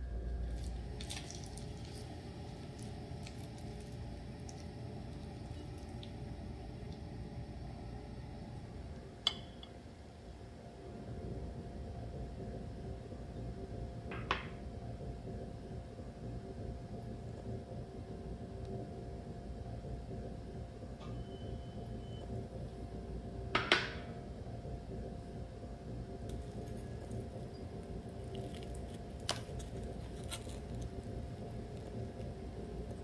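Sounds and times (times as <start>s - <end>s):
low machine-like room hum: 0.0s - 33.0s
crisp pastry crust tearing: 0.4s - 6.2s, 26.3s - 33.0s
sharp crack of crust: 26.3s - 33.0s.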